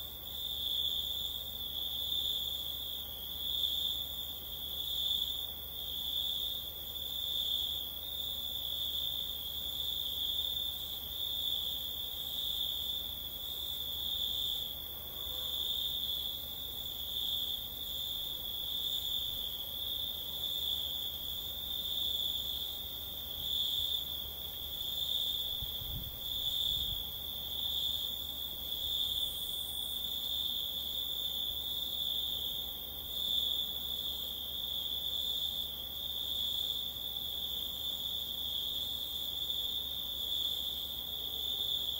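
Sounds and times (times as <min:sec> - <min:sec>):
crickets chirping: 0:00.0 - 0:41.9.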